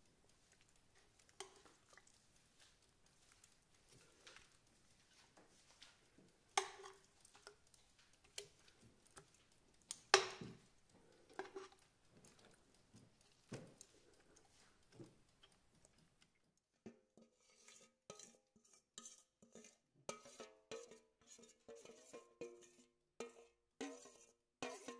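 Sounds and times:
metal tongs clinking on pot: 0:00.7 - 0:02.7, 0:05.2 - 0:12.5, 0:20.1 - 0:24.9.

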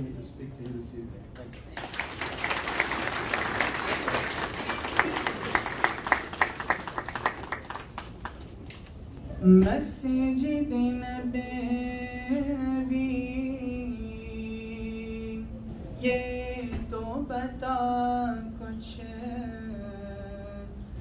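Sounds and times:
audience applauding: 0:01.7 - 0:09.0.

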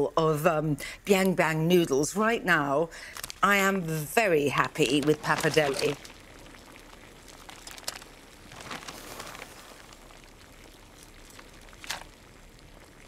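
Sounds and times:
water bubbling in a saucepan: 0:04.3 - 0:13.0.

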